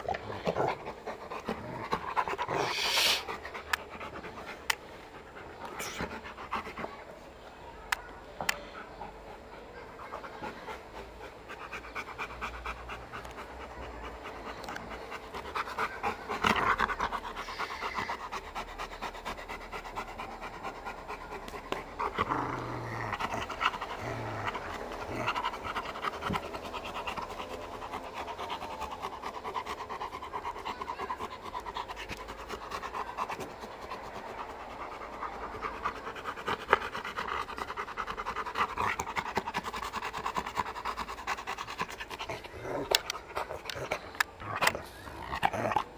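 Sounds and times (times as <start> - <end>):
dog panting: 0.0 - 45.9.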